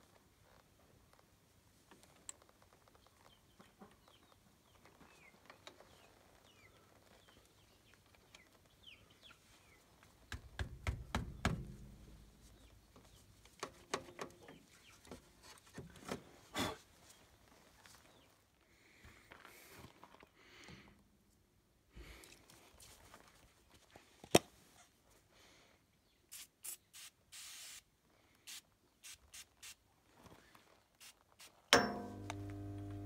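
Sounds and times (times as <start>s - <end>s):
knocks and rattles: 10.3s - 12.6s.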